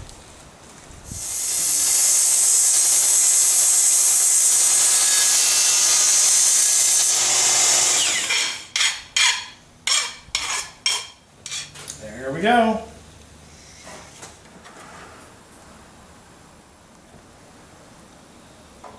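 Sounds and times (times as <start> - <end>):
miter saw cutting metal: 1.2 - 11.8
short metallic strokes: 8.0 - 12.0.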